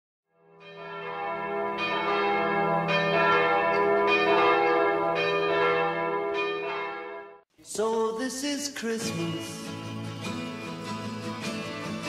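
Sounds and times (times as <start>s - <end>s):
bells ringing: 0.6s - 7.4s.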